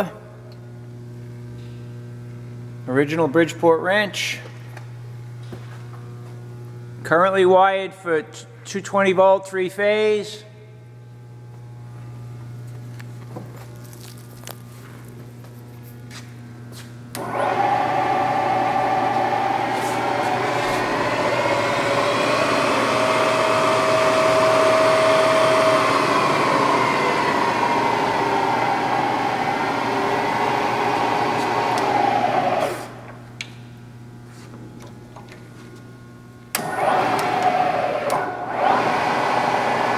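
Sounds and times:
milling machine motor whine: 0:17.1 - 0:33.7, 0:36.5 - 0:39.9.

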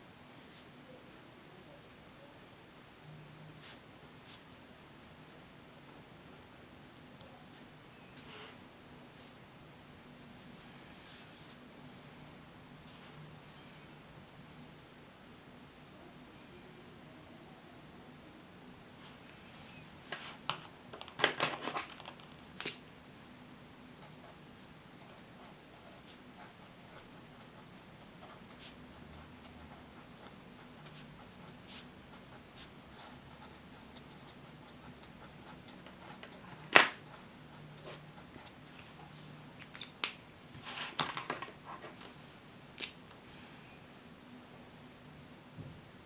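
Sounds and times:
paper rustling: 0:20.1 - 0:22.8
pens set down on wooden table: 0:36.7 - 0:37.0, 0:40.8 - 0:41.9.

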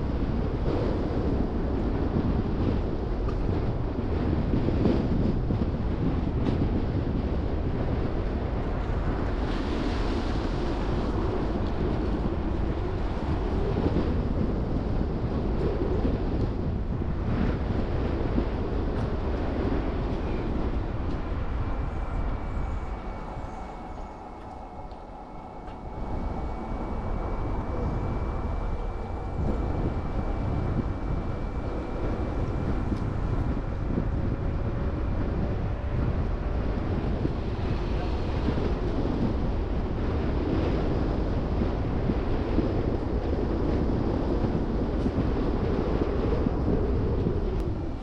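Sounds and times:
road and wind rumble: 0:00.0 - 0:48.0
faint steady whine: 0:09.6 - 0:48.0.

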